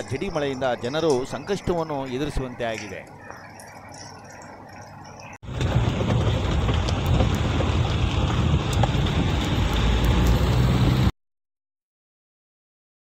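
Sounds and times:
rain drops ticking: 0.0 - 11.1
heavy rain pouring: 5.4 - 11.1
low rumble: 5.4 - 11.1.

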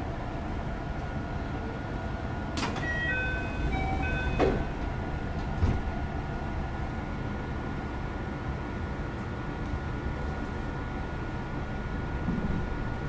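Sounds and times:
air conditioning hum: 0.0 - 13.0
electronic chime: 2.8 - 4.5
thump: 5.6 - 5.9.

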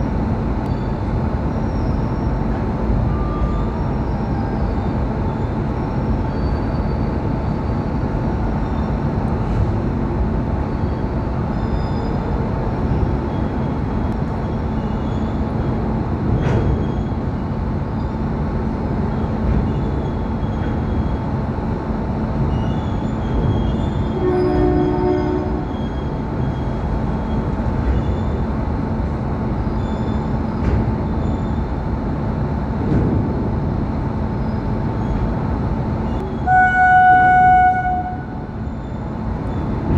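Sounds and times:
electric locomotive drone: 0.0 - 39.9
train horn toot: 24.1 - 25.8, 36.2 - 38.6.

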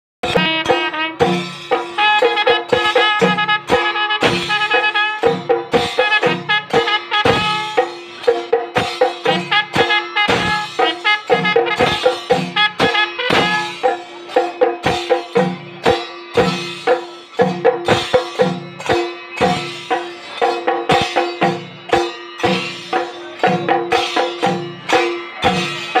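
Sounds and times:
horn holding a note: 0.2 - 5.4, 9.3 - 14.0
drums beaten with sticks: 0.2 - 26.0.

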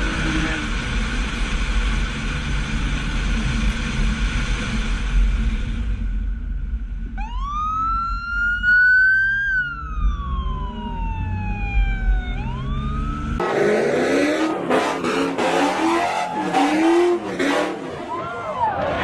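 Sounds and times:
harsh rushing noise: 0.0 - 19.0
low rumble of moving car: 0.0 - 19.0
police siren wailing: 7.2 - 19.0.

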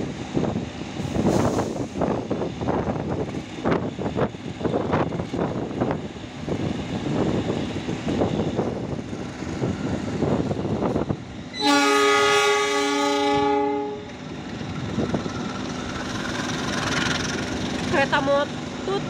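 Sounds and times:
train rumble and wheel clatter: 0.0 - 19.0
train horn: 11.6 - 14.1.

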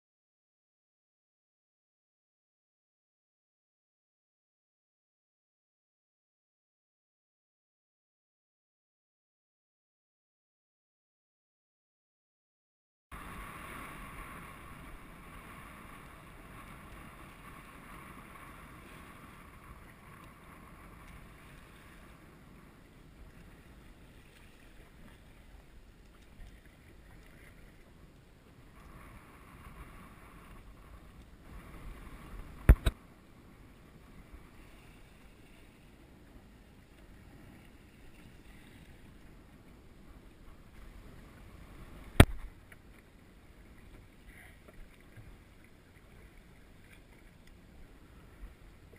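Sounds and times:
water noise: 13.1 - 48.9
wind: 13.1 - 48.9.

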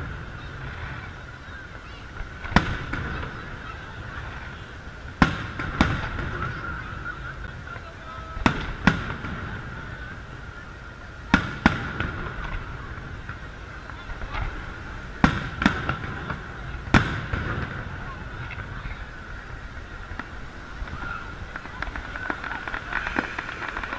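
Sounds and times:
firework shells booming: 2.2 - 7.1, 8.4 - 10.3, 11.3 - 18.8.

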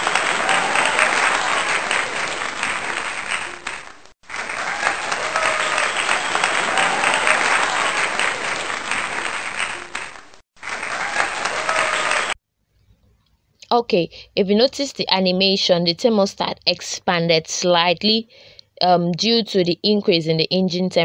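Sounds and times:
crowd clapping: 0.0 - 12.4.

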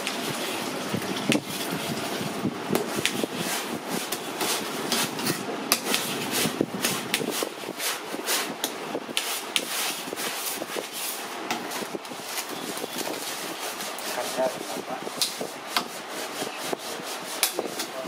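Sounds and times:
spatula scraping and tapping: 0.0 - 18.0.

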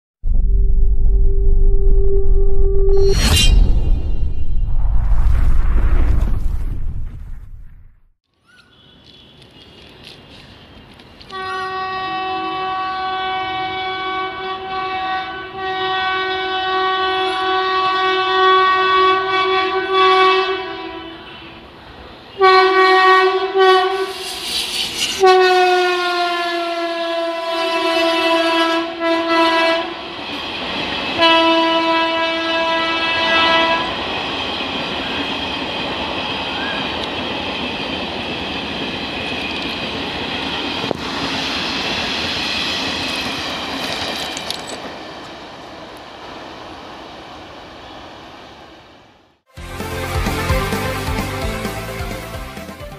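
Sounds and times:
train coaches rolling past: 8.5 - 20.0, 20.7 - 49.2
train air horn blasts: 11.3 - 21.6, 22.3 - 24.4, 25.1 - 30.0, 31.2 - 34.0.

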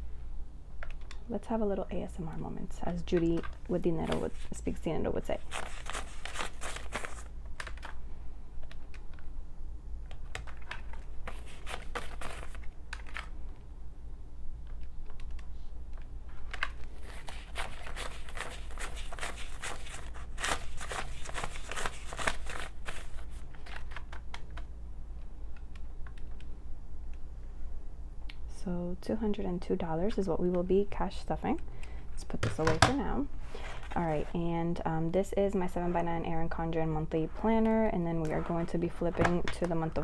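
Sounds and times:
banknotes rustling and crinkling: 2.9 - 8.0, 10.2 - 13.4, 16.3 - 24.6, 32.6 - 34.4, 35.6 - 40.0.

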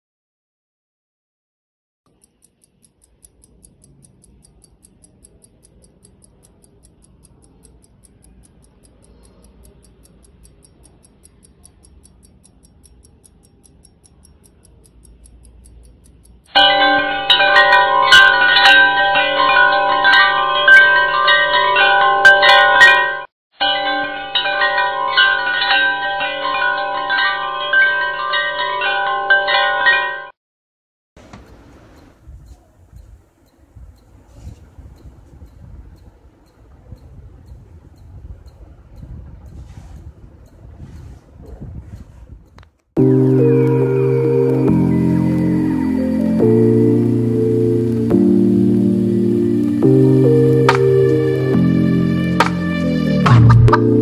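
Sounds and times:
pocket watch ticking: 2.1 - 16.6, 31.4 - 34.2, 34.9 - 40.8
wall clock chime ringing: 16.5 - 30.3, 43.0 - 51.6.

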